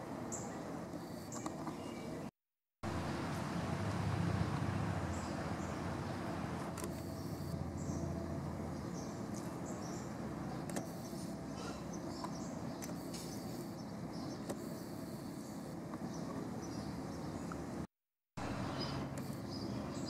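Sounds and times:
faint bird chirps: 18.5s - 20.0s.

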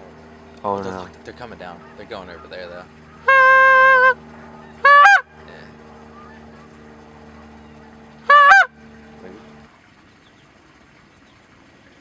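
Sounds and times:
faint steady hum: 0.0s - 12.0s
goose honks: 2.0s - 5.3s, 8.3s - 8.8s.

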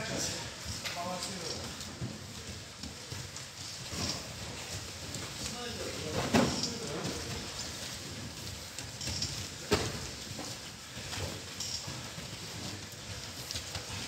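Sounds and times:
bodies thudding on gym mats: 2.0s - 12.1s.

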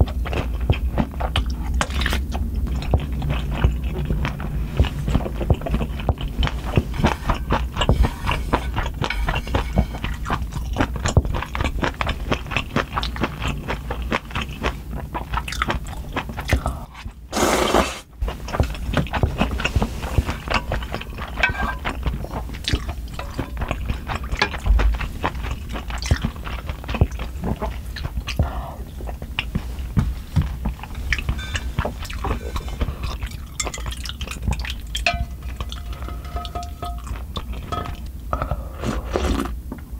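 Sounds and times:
chewing noodles: 0.0s - 39.6s.

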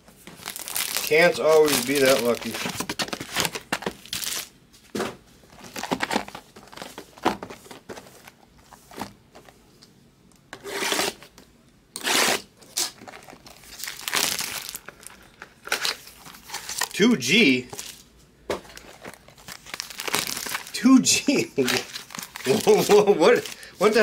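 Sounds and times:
card pack wrappers crinkling and tearing: 0.1s - 4.5s, 5.5s - 8.4s, 12.6s - 17.0s, 17.7s - 24.0s.

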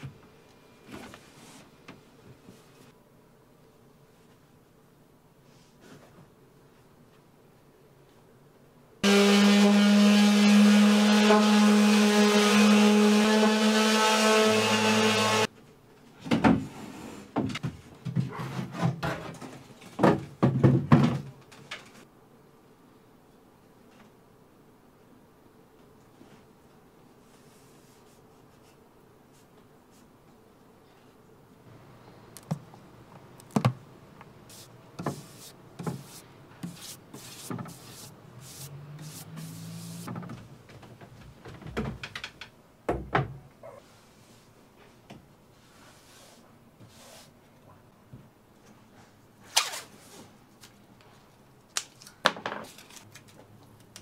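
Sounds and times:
paintbrush swishing on plywood: 27.2s - 30.1s, 34.5s - 40.1s, 45.5s - 47.4s.

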